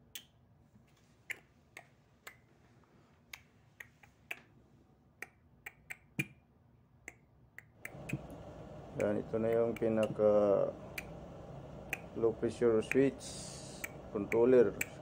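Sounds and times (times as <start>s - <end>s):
faint low hum: 7.8s - 15.0s
sharp short clicks: 11.9s - 12.2s.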